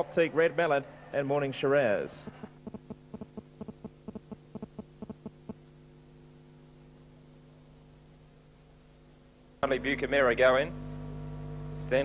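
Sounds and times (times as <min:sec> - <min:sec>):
low electrical hum: 0:00.0 - 0:12.0
faint irregular ticks: 0:02.3 - 0:05.6.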